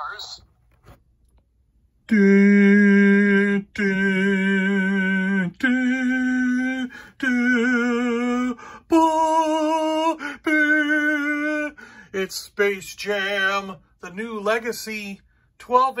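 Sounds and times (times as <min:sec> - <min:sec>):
person singing long notes: 0:02.1 - 0:11.8.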